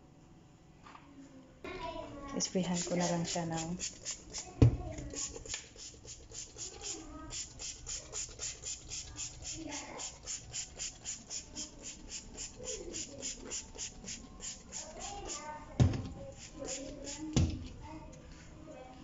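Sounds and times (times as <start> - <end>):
spray bottle spritzing: 2.6 - 17.6.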